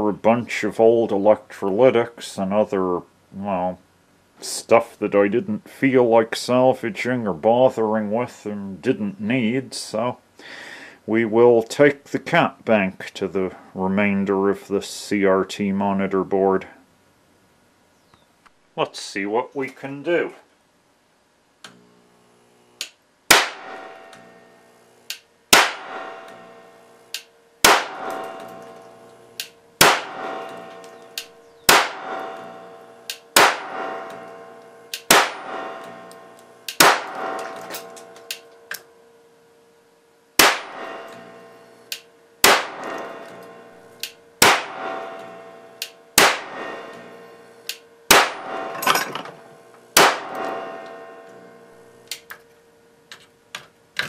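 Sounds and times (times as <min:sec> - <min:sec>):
capacitor discharge cracks: 0:21.6 - 0:38.9, 0:40.4 - 0:48.8, 0:49.4 - 0:52.5.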